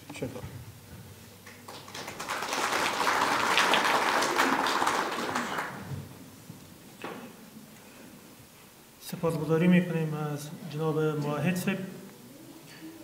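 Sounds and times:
audience applauding: 1.4s - 6.0s.

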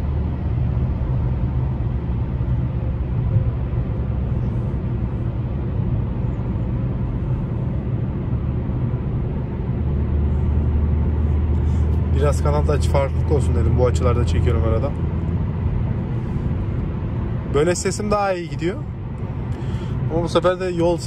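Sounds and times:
car road and engine rumble: 0.0s - 21.0s.

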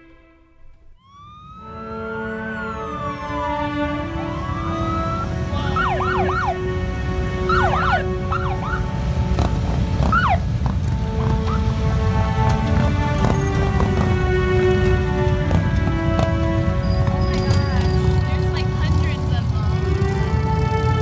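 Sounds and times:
motorcycle engines rumbling: 0.8s - 21.0s
police sirens wailing and yelping: 1.0s - 21.0s.

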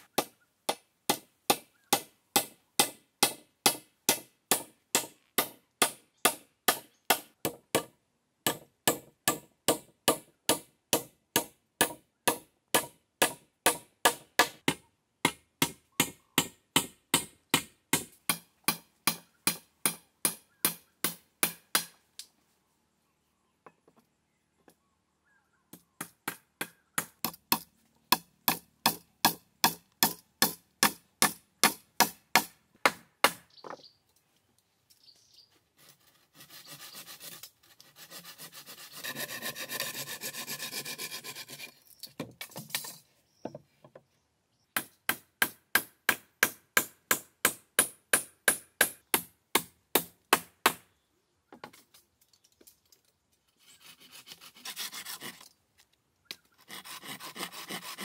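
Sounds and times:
hand saw cutting wood: 35.7s - 41.9s, 53.5s - 55.5s, 56.5s - 58.0s.

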